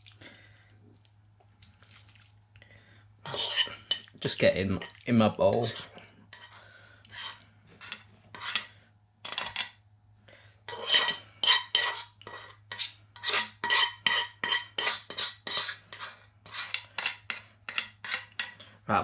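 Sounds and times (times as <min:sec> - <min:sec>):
metal fork scraping a wok: 0:03.2 - 0:04.0, 0:04.8 - 0:08.7, 0:09.3 - 0:09.6, 0:10.7 - 0:18.6.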